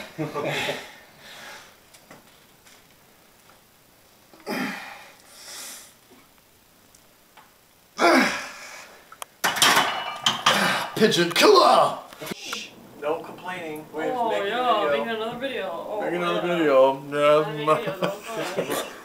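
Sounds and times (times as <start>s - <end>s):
man breathing heavily: 0.0s - 1.8s, 4.4s - 6.0s.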